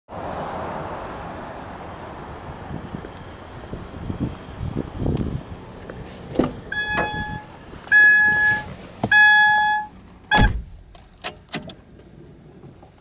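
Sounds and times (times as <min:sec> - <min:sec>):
car door shutting: 0:06.3 - 0:11.8
car warning chime: 0:06.7 - 0:10.6.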